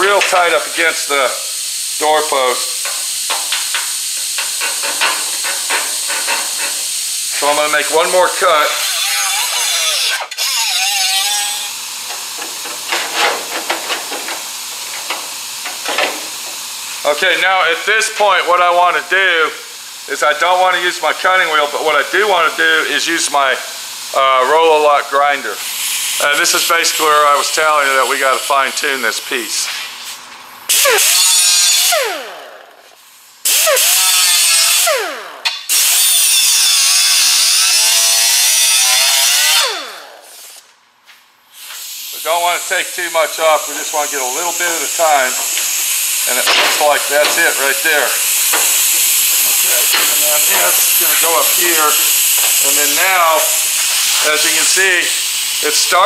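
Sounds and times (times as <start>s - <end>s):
disc grinder grinding sheet metal: 0.0s - 18.6s, 30.7s - 32.3s, 33.5s - 35.2s, 35.8s - 40.0s, 42.2s - 56.0s
sheet metal taps and scrapes: 2.9s - 6.8s
steady hiss: 41.4s - 56.0s.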